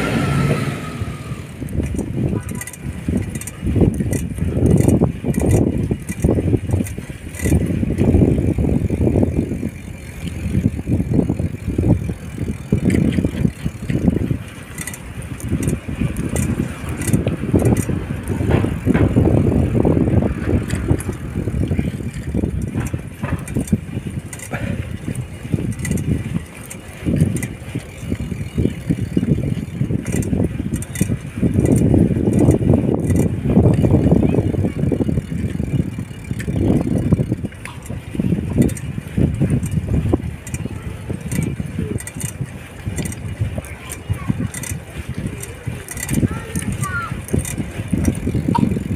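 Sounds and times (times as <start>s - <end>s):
wind buffeting microphone: 0.0s - 48.9s
faint clicks: 39.5s - 48.8s.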